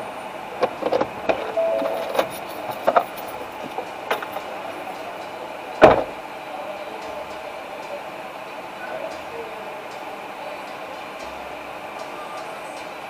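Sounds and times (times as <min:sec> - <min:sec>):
steady cab hum: 0:00.0 - 0:13.0
person climbing out of cab: 0:00.6 - 0:04.5, 0:05.8 - 0:06.2
vehicle door opening clicks: 0:00.6 - 0:04.5, 0:05.8 - 0:06.2
car door slam: 0:05.8 - 0:06.2.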